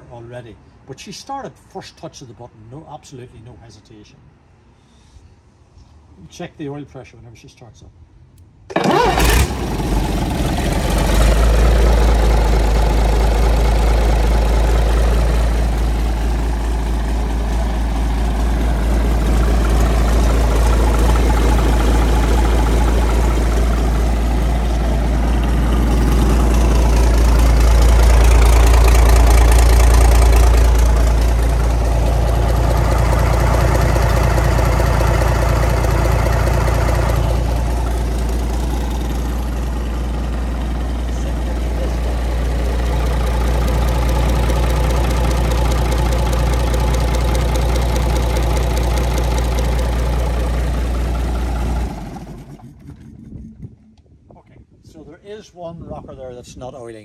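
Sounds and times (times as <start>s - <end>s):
diesel engine idling: 8.7s - 53.4s.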